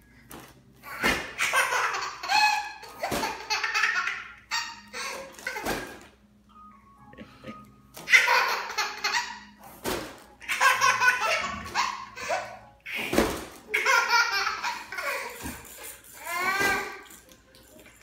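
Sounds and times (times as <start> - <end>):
babies giggling: 7.2 - 9.6, 10.4 - 17.3.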